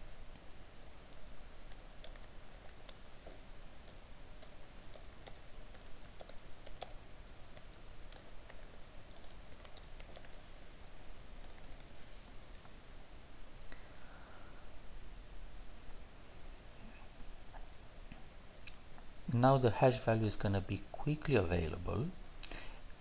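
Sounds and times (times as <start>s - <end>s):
keyboard typing clicks: 2.0s - 3.0s, 3.8s - 7.0s, 7.6s - 10.4s, 11.4s - 11.9s.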